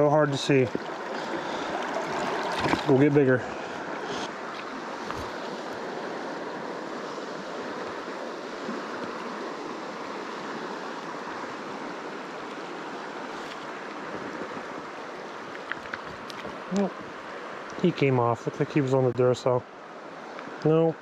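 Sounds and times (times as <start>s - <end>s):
creek water running over cobbles: 0.0s - 6.6s.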